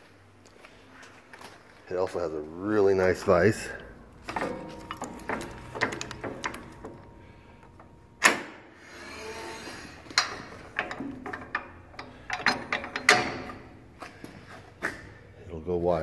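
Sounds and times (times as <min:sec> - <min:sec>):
metal vise knocks and clicks: 0:04.3 - 0:07.1, 0:10.1 - 0:13.7.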